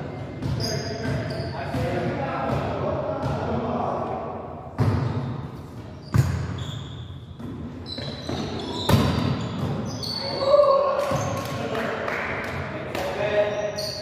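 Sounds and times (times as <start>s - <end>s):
sneakers squeaking on court: 0.2s - 2.0s, 4.8s - 10.5s, 13.5s - 14.0s.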